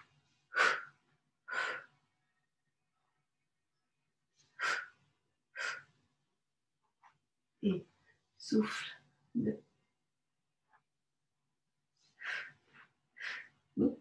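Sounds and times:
woman breathing: 0.0 - 2.1, 4.4 - 6.0, 12.0 - 13.8.

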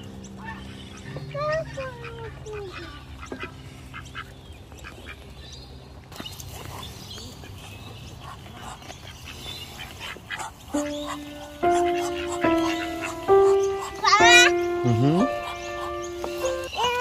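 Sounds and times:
ducks quacking: 0.2 - 5.4, 6.6 - 17.0
music with held notes: 10.7 - 17.0.

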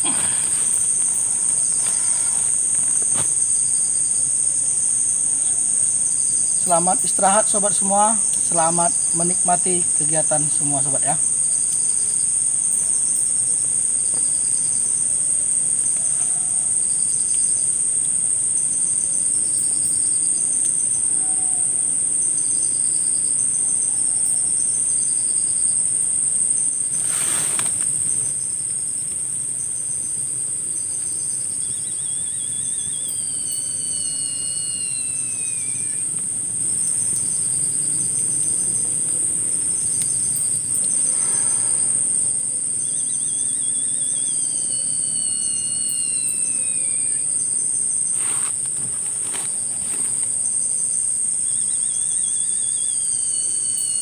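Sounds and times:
high wavering animal calls: 0.0 - 3.2, 31.4 - 38.9, 39.9 - 48.5
cricket chirps: 0.0 - 54.0
insect drone: 0.0 - 54.0.

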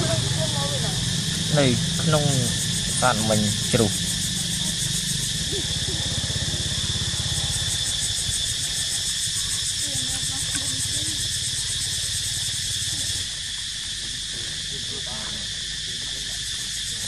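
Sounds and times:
low rumble with rapid flutter: 0.0 - 13.4
insect chorus buzzing: 0.0 - 17.0.

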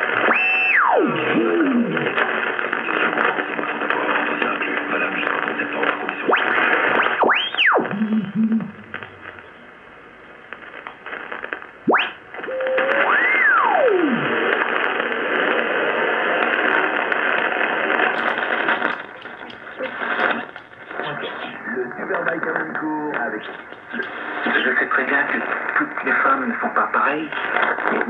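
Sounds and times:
radio static and band noise: 0.0 - 28.0
radio whistles sliding in pitch: 0.3 - 1.2, 11.9 - 14.2.

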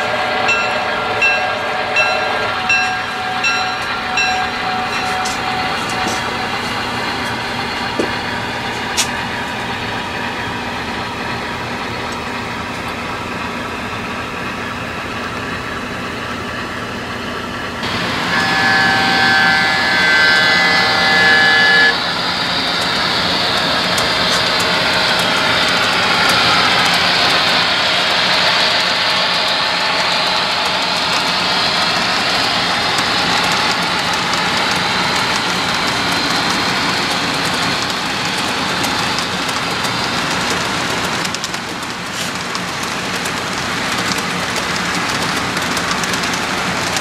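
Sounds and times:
multi-tone locomotive horn: 0.0 - 7.4, 17.8 - 35.2
model train rolling rumble: 0.0 - 47.0.

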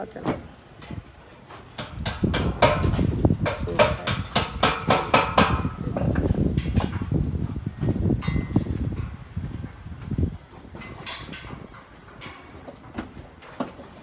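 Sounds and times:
hammer striking metal: 1.8 - 5.8.

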